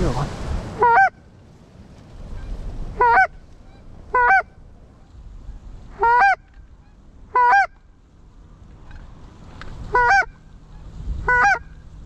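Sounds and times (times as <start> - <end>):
goose call honks: 0.8 - 1.2, 2.4 - 4.6, 5.9 - 7.8, 9.9 - 11.8.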